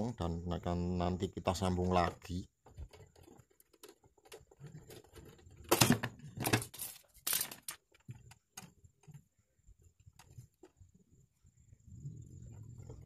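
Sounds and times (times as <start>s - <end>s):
handling noises: 1.8s - 11.0s.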